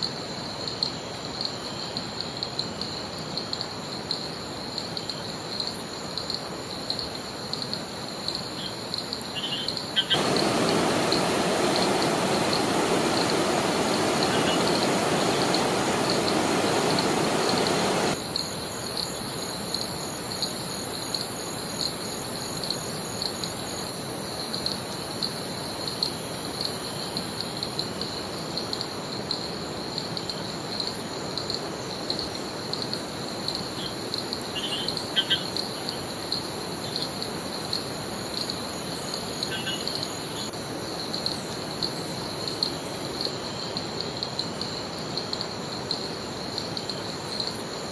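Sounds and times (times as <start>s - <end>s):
waterfall rushing: 10.2s - 18.2s.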